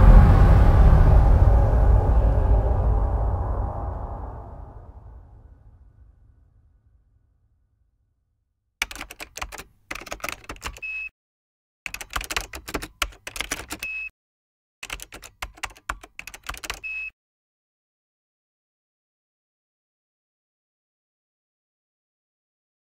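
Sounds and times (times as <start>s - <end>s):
rapid typing clatter: 8.8s - 11.0s, 11.9s - 14.1s, 14.8s - 17.1s
short high beep: 10.8s - 11.1s, 13.8s - 14.1s, 16.8s - 17.1s.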